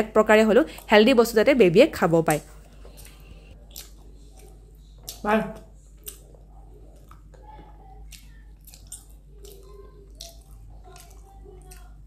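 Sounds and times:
low room hum: 0.0s - 12.0s
people chewing: 2.5s - 12.0s.

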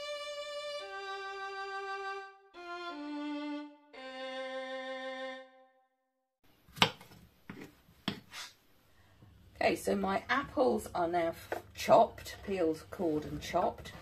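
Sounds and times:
violin slow held notes: 0.0s - 5.8s.

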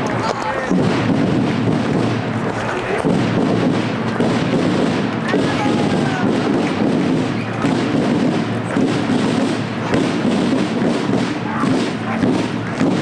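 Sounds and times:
parade street rumble: 0.0s - 13.0s.

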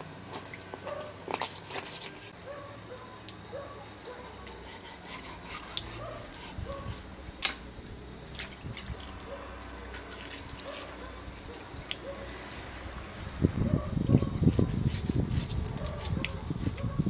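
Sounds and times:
wet clicks of fish gutting: 5.8s - 10.1s.

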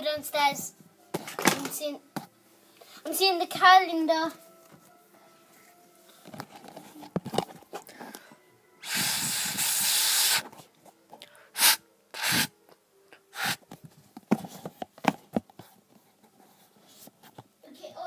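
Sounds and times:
loud hiss: 8.8s - 10.5s, 11.5s - 12.6s, 13.3s - 13.6s.

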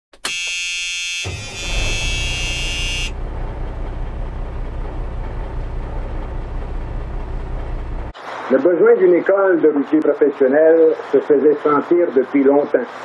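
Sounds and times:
truck air horn blast: 0.3s - 3.2s
low truck rumble: 1.3s - 8.4s.

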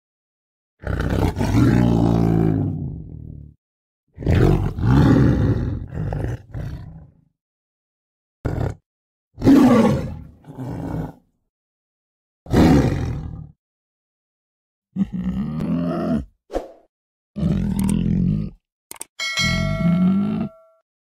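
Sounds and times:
big cat roaring: 0.8s - 3.4s, 4.2s - 7.2s, 8.5s - 8.8s, 9.4s - 11.2s, 12.5s - 13.6s, 15.0s - 16.3s, 17.4s - 18.6s.

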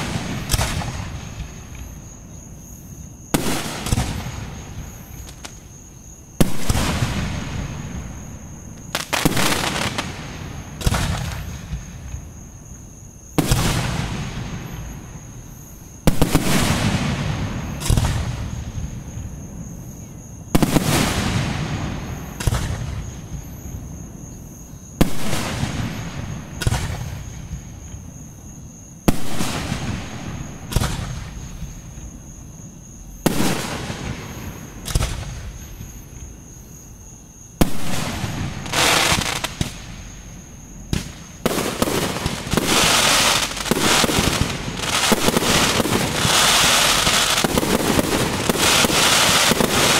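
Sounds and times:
dense firework crackling: 0.0s - 1.9s, 3.3s - 5.7s, 6.4s - 12.2s, 13.4s - 15.0s, 16.1s - 18.9s, 20.6s - 23.6s, 29.0s - 32.0s, 33.2s - 36.0s, 37.6s - 40.1s, 40.8s - 49.9s
firework shells booming: 0.0s - 1.9s, 40.8s - 49.9s.

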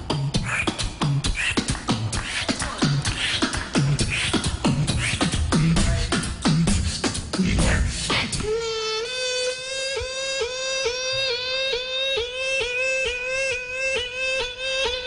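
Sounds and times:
beatboxing into a microphone: 0.0s - 15.0s.

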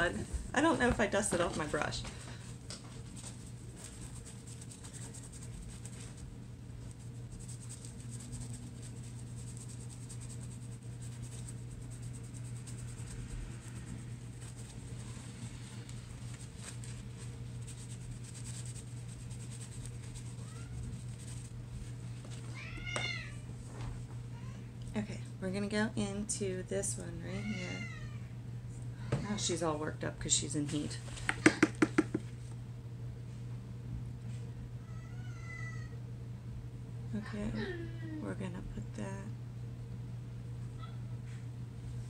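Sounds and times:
steady low hum: 0.0s - 42.0s
cat meowing: 22.5s - 23.4s, 34.8s - 36.0s.

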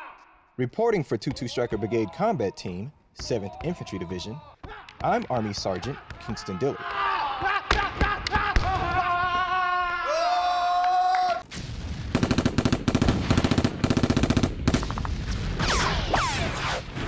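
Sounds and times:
person shouting: 0.0s - 0.4s, 3.3s - 11.4s
automatic gunfire: 12.1s - 15.0s.

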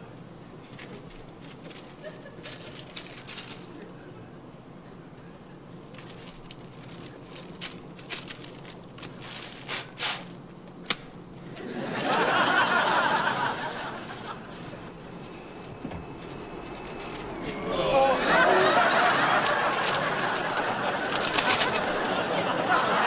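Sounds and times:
paper bag crinkling: 0.6s - 4.0s, 5.8s - 23.0s
studio audience laughter: 11.4s - 15.0s, 17.7s - 23.0s.

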